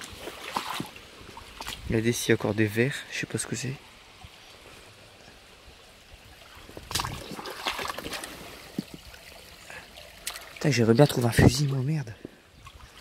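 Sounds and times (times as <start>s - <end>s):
splashes and knocks: 0.0s - 1.9s, 6.4s - 9.2s, 10.1s - 11.8s
river water trickling: 0.0s - 13.0s.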